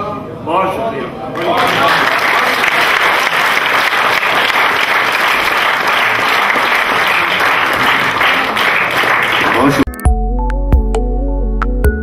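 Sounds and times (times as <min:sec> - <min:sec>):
audience applauding: 0:01.4 - 0:09.9.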